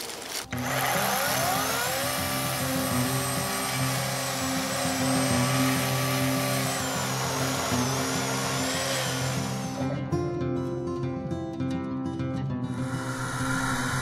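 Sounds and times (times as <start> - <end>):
electric chainsaw cutting log: 0.0 - 10.1.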